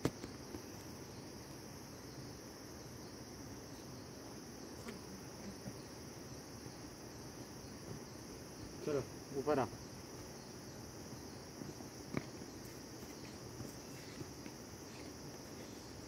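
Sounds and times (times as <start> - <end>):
insects chirring: 0.0 - 16.0.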